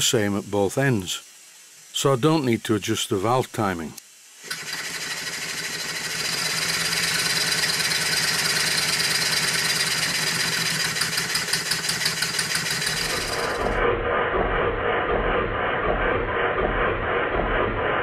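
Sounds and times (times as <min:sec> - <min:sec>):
model steam engine puffing: 0:04.4 - 0:13.7.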